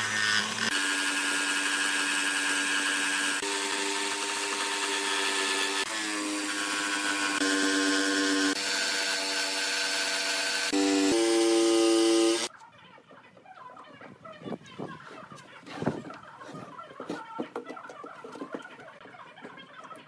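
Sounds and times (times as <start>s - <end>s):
electric jigsaw cutting wood: 0.0s - 12.5s.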